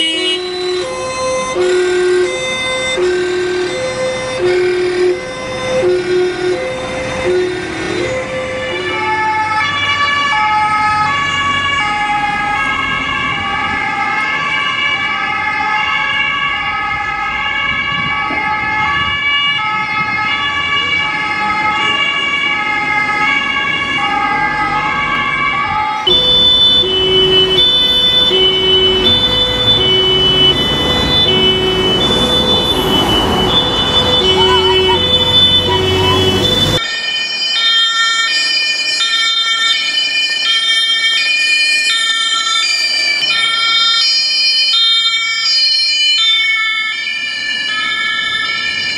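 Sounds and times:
traffic noise: 0.0s - 48.9s
two-tone police siren: 0.0s - 48.9s.

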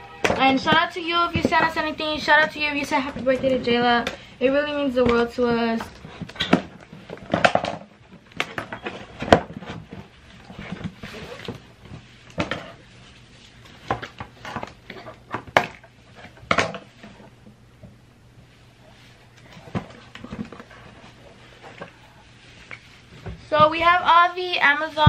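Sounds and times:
objects handled at a table: 5.0s - 18.0s.

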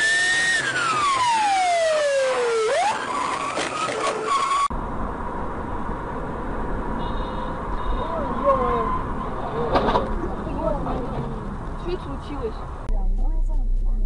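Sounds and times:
car tyres squealing: 0.0s - 4.7s, 7.0s - 11.6s
car engine: 0.0s - 13.6s
low road rumble: 0.0s - 14.0s.

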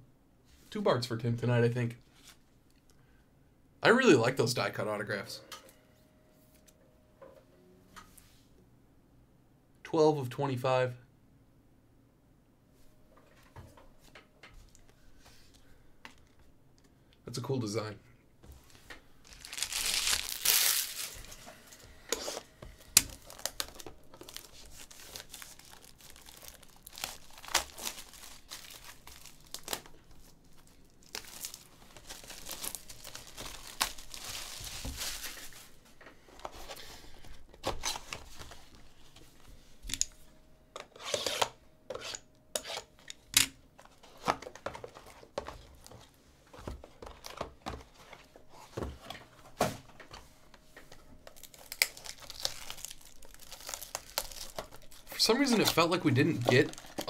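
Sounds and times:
shrink wrap tearing and crinkling: 19.2s - 21.4s, 22.3s - 35.7s, 51.3s - 57.0s.

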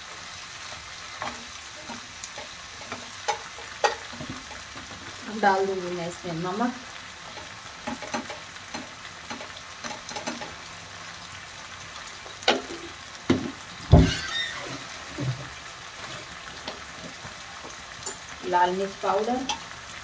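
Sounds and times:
onions sizzling in a pan: 0.0s - 20.0s
utensils clinking against pans: 1.1s - 4.8s, 7.3s - 10.6s, 12.5s - 15.4s, 18.0s - 18.4s
loud thump: 13.3s - 14.2s.

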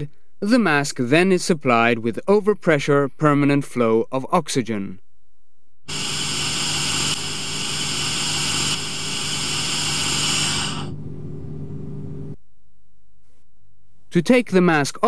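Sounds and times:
low steady hum: 5.0s - 14.1s
oxygen hissing through mask: 5.9s - 11.0s.

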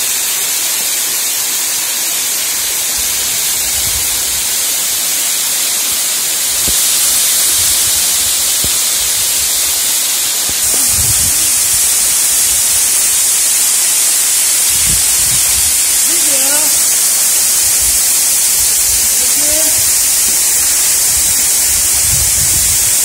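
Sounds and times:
waterfall splashing over boulders: 0.0s - 23.0s.

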